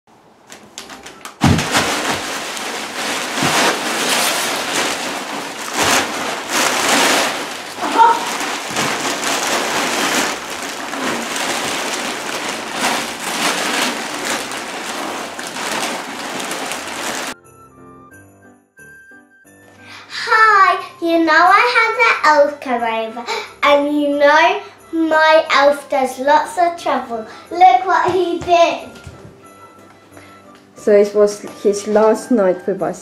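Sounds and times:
wrapping paper crinkling and tearing: 0.5s - 17.4s.

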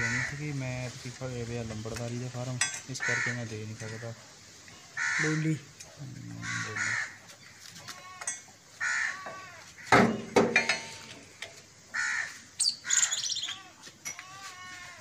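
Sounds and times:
crows cawing: 0.0s - 0.4s, 3.0s - 4.2s, 4.9s - 5.6s, 6.3s - 10.1s, 11.9s - 15.0s
high thin calls: 11.9s - 15.0s.

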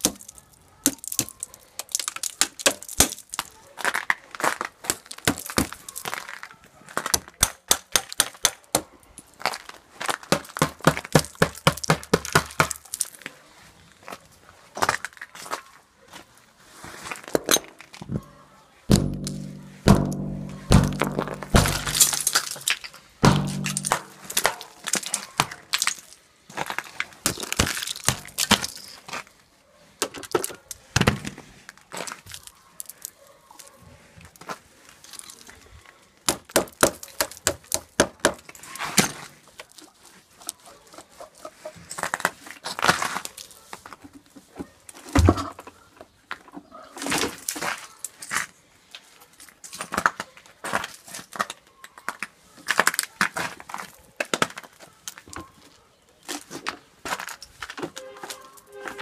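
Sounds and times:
ice cracking off metal: 0.0s - 6.5s, 20.7s - 29.0s
hammer striking ice: 18.9s - 25.1s, 27.3s - 28.8s.

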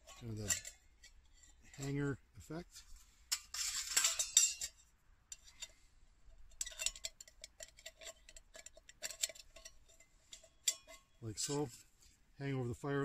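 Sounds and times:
wire hanger rattling on metal cup: 0.0s - 1.1s, 3.3s - 5.8s, 6.4s - 11.7s
metal clinks: 6.5s - 11.6s.

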